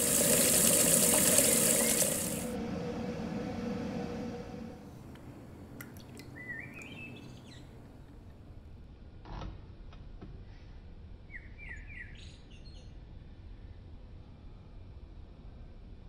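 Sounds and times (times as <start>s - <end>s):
low steady hum: 0.0s - 9.1s
small birds chirping: 6.3s - 7.8s.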